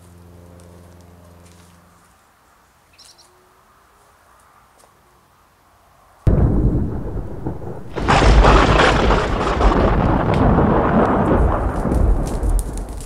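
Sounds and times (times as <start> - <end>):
thunder crack: 6.3 - 13.0
thunder rolling rumble: 6.3 - 13.0.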